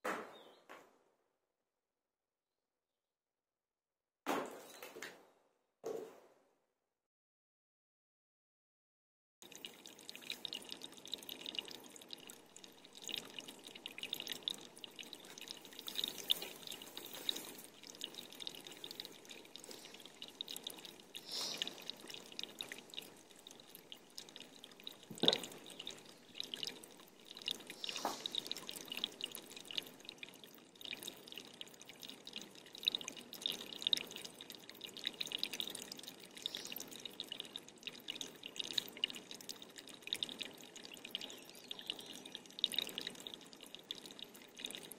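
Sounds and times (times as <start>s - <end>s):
water dripping: 9.4s - 44.9s
sharp loud drip or knock: 24.9s - 26.8s, 27.4s - 29.4s.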